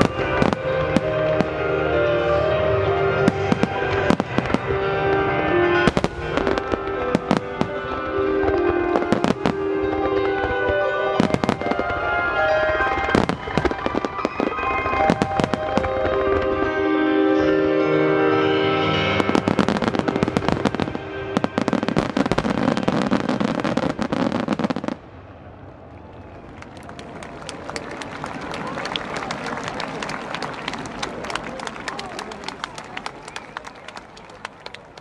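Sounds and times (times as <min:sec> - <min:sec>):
melody of held notes: 0:00.0 - 0:25.9.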